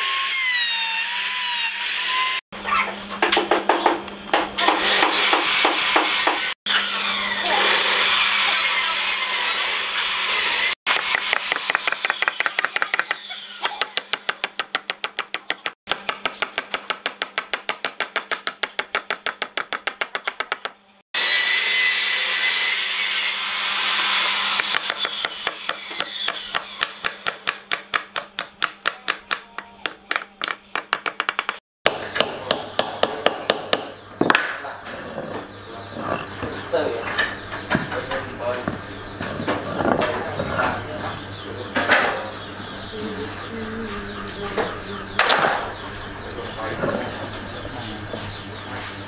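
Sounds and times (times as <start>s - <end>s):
hammer tapping wood block: 10.9s - 20.8s, 24.6s - 34.5s.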